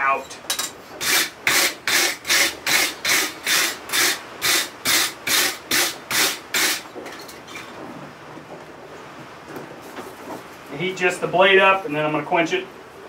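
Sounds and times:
wire brush scrubbing metal: 1.0s - 6.9s.

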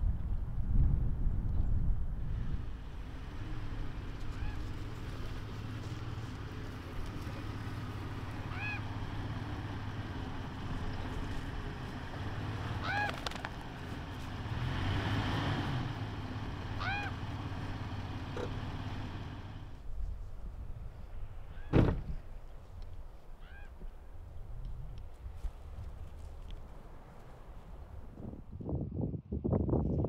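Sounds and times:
engine idling: 2.3s - 19.8s
short high honk-like calls: 16.8s - 17.2s.

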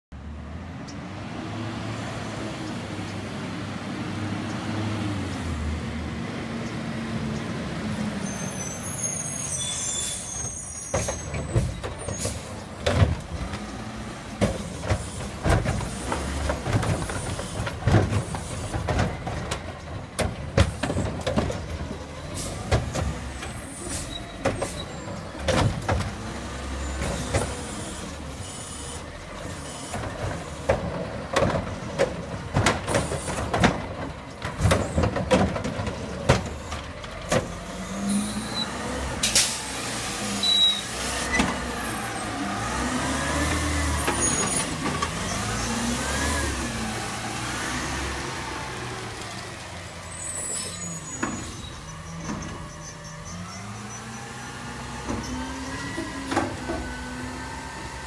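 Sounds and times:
air brakes hissing: 7.9s - 12.6s, 37.9s - 41.5s.

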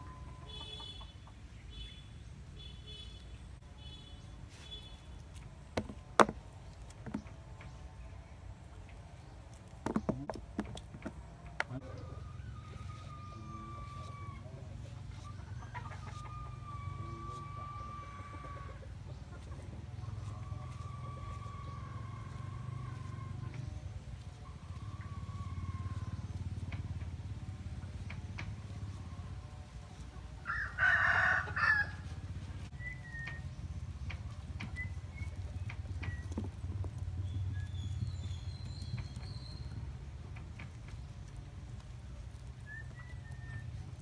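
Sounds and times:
rooster crowing: 12.0s - 14.6s, 16.2s - 18.8s, 30.4s - 32.1s.

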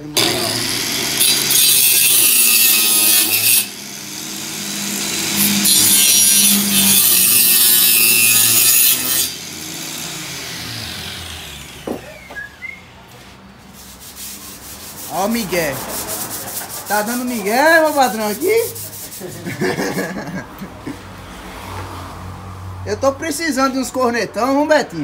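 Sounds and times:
saw cutting wood: 0.0s - 12.8s, 13.7s - 20.2s
saw motor humming: 0.1s - 12.9s.

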